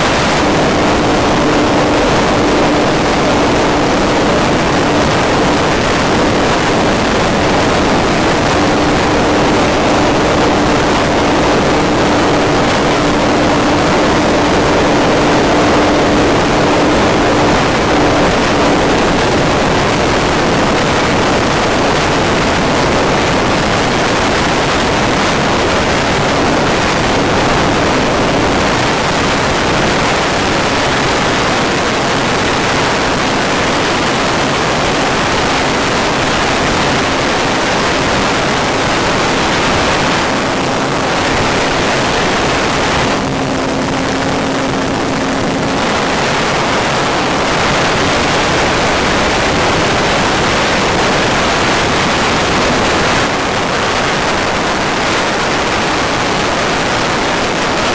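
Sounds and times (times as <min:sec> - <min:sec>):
model plane propeller rushing: 0:00.0 - 0:53.1
steady low hum: 0:00.0 - 0:57.9.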